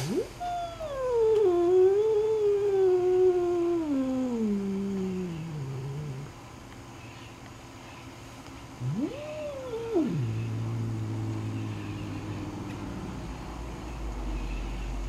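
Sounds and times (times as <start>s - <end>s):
angry cat yowling: 0.0s - 6.3s, 8.8s - 14.5s
cat growling low: 0.0s - 6.4s, 8.8s - 14.5s.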